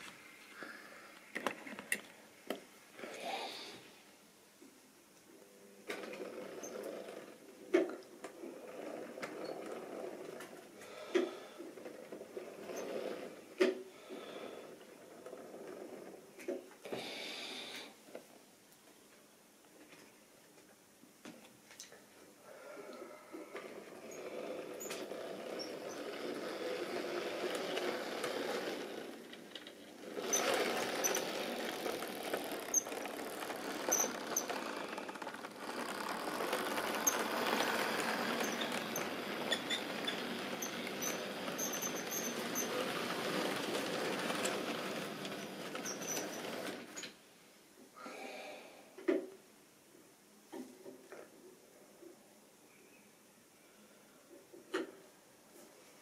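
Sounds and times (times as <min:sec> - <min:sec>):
wheels clicking over rail joints: 0:23.4 - 0:47.2
model train rattling on track: 0:23.9 - 0:47.1.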